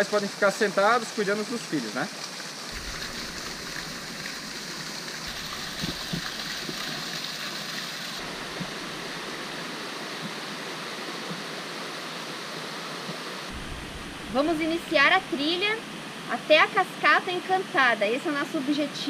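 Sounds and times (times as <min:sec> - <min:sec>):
stream rushing over rocks: 0:00.0 - 0:19.0
water splashing into pool: 0:02.2 - 0:09.6.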